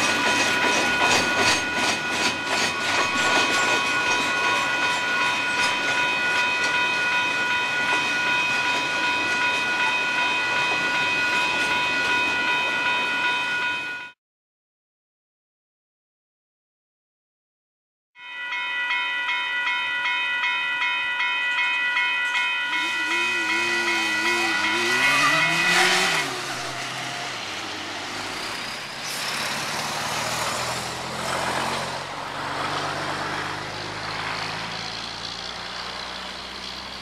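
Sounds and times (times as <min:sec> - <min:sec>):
level crossing warning bell: 0:00.0 - 0:14.2, 0:18.2 - 0:29.0
road traffic passing: 0:22.7 - 0:37.0.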